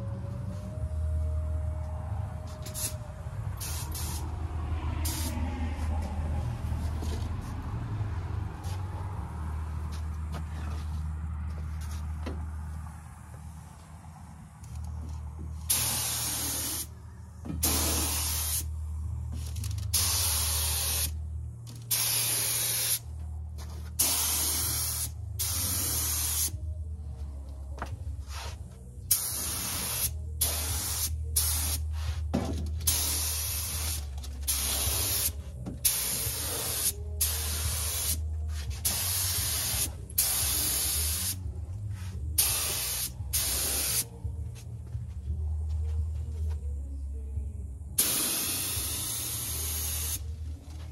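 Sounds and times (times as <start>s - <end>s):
steady low hum: 0.0s - 50.9s
spray gun hissing air bursts: 3.6s - 4.3s, 5.0s - 5.4s, 15.7s - 16.9s, 17.6s - 18.7s, 19.9s - 21.2s, 21.9s - 23.0s, 24.0s - 26.5s, 29.1s - 32.2s, 32.9s - 41.4s, 42.4s - 44.1s, 48.0s - 50.2s.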